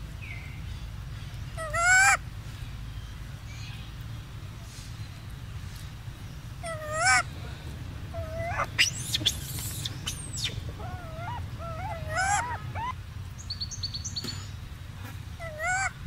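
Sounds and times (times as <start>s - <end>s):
steady low hum: 2.2s - 16.0s
wavering animal calls: 6.6s - 13.0s, 15.4s - 16.0s
high squeaks and chirps: 8.1s - 12.9s.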